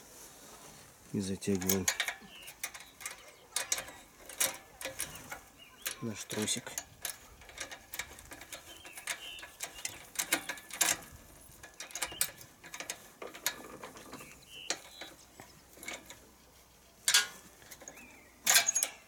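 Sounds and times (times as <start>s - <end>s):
ratchet clicking on metal: 1.6s - 16.3s, 17.0s - 19.0s
short high squeaks: 17.9s - 19.0s.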